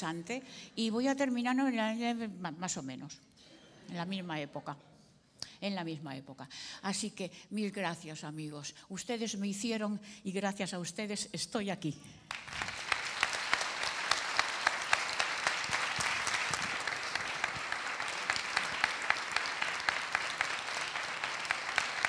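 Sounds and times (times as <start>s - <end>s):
audience applauding: 12.3s - 22.0s
sharp nearby claps: 12.3s - 22.0s.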